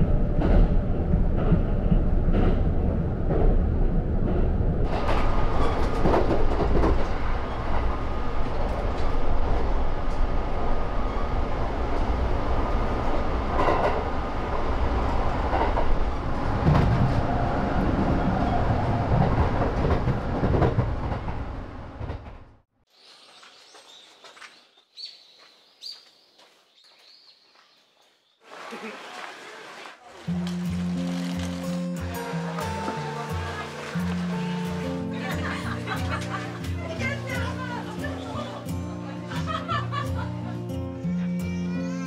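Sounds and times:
train rumbling: 0:00.0 - 0:22.7, 0:30.0 - 0:40.5
wheels clicking over rail joints: 0:04.5 - 0:10.4.

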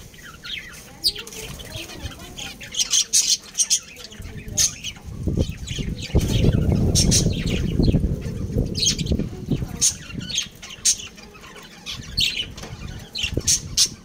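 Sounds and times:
birds chirping and squawking: 0:00.0 - 0:14.0
low rustling rumble: 0:04.2 - 0:11.2.

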